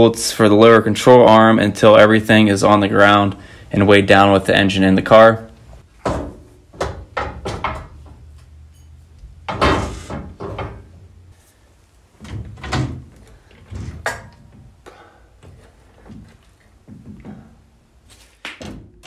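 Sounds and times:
metal clunks and knocks: 6.0s - 11.1s.

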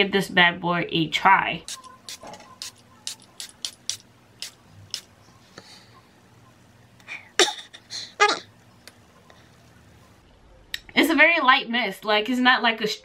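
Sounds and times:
spray bottle spritzing: 1.6s - 5.1s.

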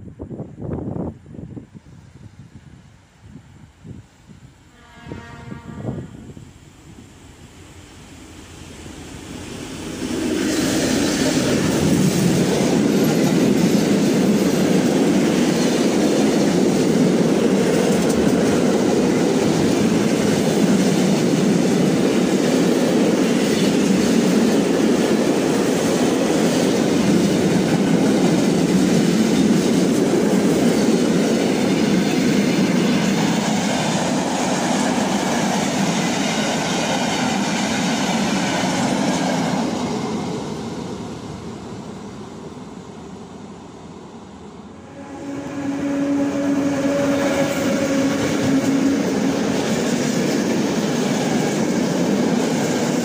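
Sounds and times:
freight train passing: 0.0s - 53.0s
wheels clattering on rails: 10.7s - 40.3s.

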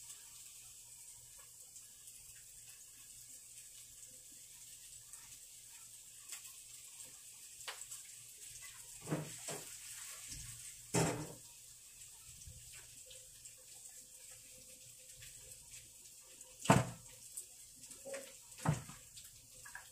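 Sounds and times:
faint steady hiss: 0.0s - 19.9s
kitchenware knocking and clattering: 9.0s - 9.7s, 10.9s - 11.4s, 16.7s - 17.0s.

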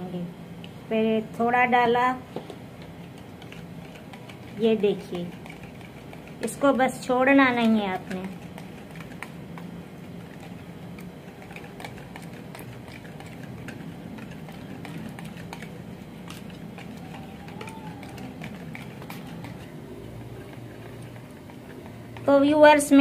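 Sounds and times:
steady low hum: 0.0s - 23.0s
whisk clicking against bowl: 2.8s - 23.0s.

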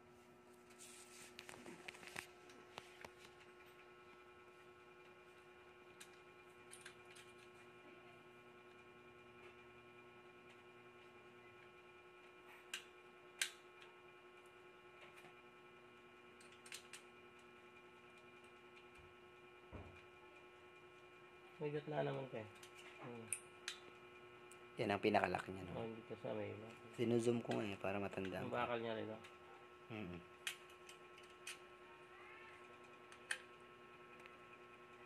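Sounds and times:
steady hum: 0.0s - 35.0s
faint clicks of small parts: 5.9s - 7.7s, 10.4s - 14.0s, 16.3s - 19.0s, 22.2s - 24.6s, 30.4s - 31.7s, 32.5s - 34.4s.

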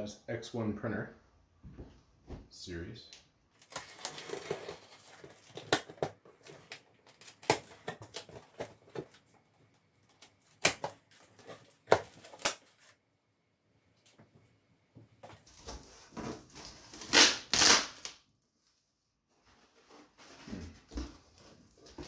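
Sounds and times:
packing tape ripping: 3.6s - 9.2s, 10.1s - 13.0s, 16.5s - 18.2s
cardboard scraping: 3.7s - 9.2s.

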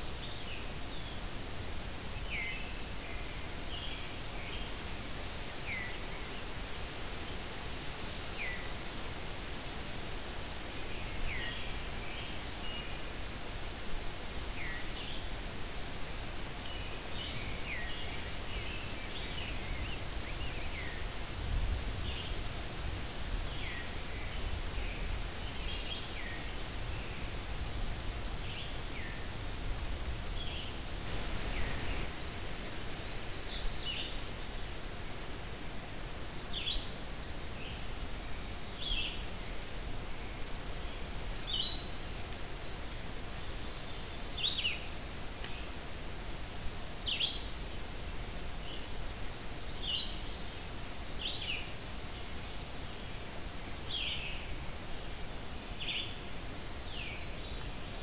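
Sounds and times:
steady hiss: 0.0s - 58.0s.

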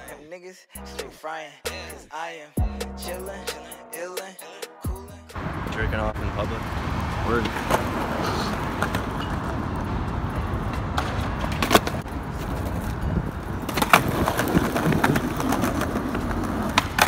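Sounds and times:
skateboard wheels rolling on concrete: 5.4s - 17.0s
skateboard clacking on pavement: 7.4s - 9.8s, 10.5s - 17.0s.

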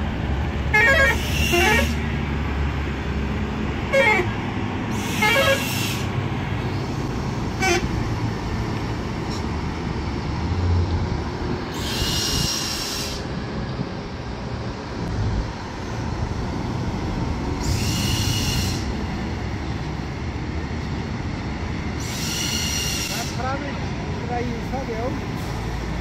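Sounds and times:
diesel truck engines droning: 0.0s - 26.0s
truck horn toots: 0.7s - 2.1s, 3.9s - 4.4s, 5.0s - 6.0s, 7.6s - 8.0s.

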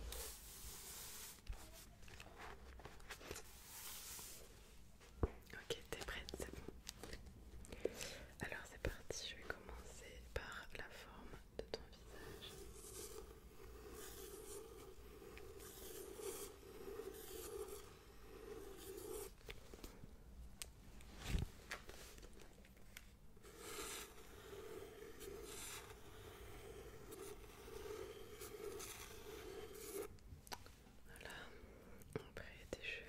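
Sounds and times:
pencil scratching on paper: 0.0s - 4.4s, 11.1s - 19.4s, 23.4s - 30.2s.

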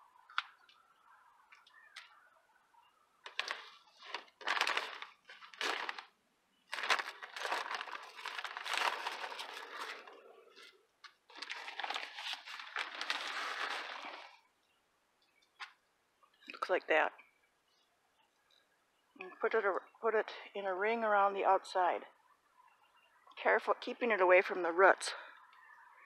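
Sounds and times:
fertilizer bag rustling: 3.3s - 14.5s.

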